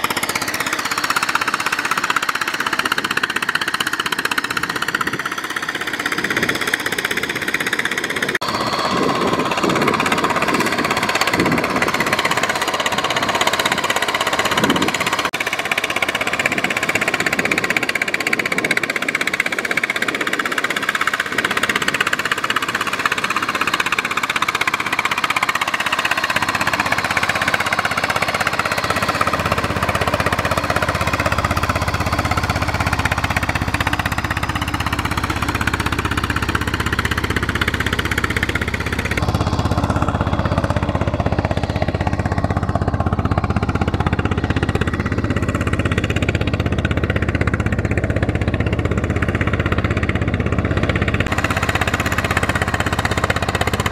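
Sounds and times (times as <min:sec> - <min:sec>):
diesel tractor engines running: 0:00.0 - 0:53.9.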